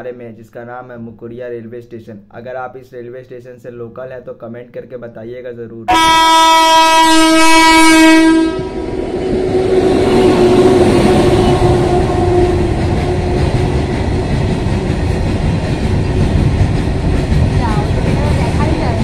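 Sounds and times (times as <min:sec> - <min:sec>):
locomotive horn: 0:05.9 - 0:14.2
train rumbling and clattering past: 0:07.6 - 0:19.0.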